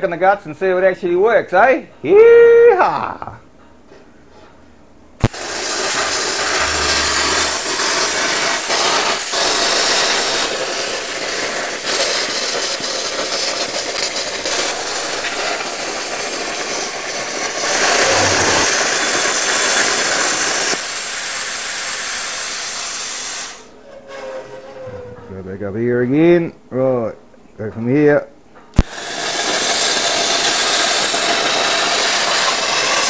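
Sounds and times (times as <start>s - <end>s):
plasma torch hissing: 5.3s - 19.5s, 28.9s - 33.0s.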